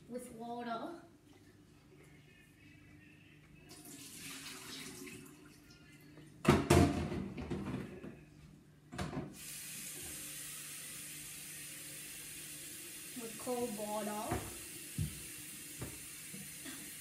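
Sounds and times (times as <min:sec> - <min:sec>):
tap water running: 0:03.7 - 0:05.7, 0:09.4 - 0:17.0.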